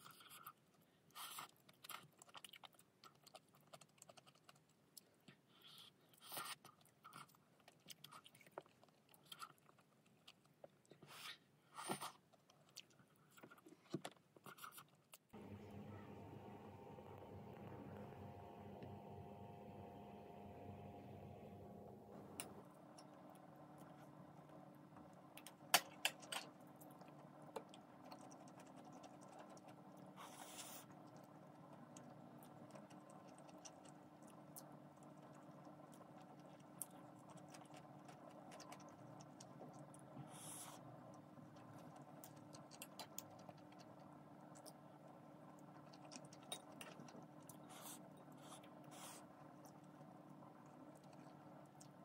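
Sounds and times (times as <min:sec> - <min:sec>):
faint steady hum: 0:15.1 - 0:52.0.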